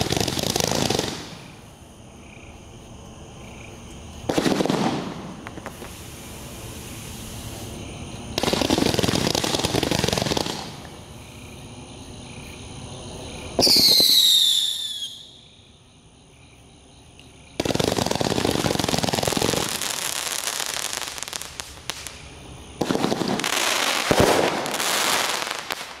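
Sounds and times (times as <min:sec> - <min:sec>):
rapid firework shots crackling: 0:00.0 - 0:01.6, 0:04.3 - 0:07.3, 0:08.3 - 0:11.0, 0:17.6 - 0:26.0
firework whistling: 0:00.0 - 0:01.7, 0:04.3 - 0:11.0, 0:13.6 - 0:15.5, 0:17.6 - 0:26.0
firework bang: 0:04.3 - 0:06.0, 0:22.8 - 0:26.0.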